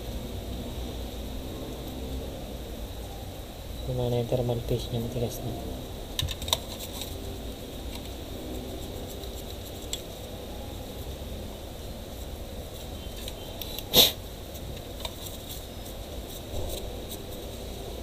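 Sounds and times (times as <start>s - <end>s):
steady low hum: 0.0s - 18.0s
person sniffing: 13.8s - 14.2s.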